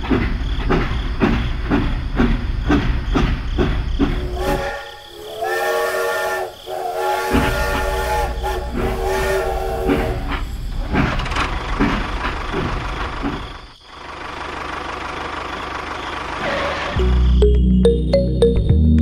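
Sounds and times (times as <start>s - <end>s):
steam whistle: 4.3s - 10.4s.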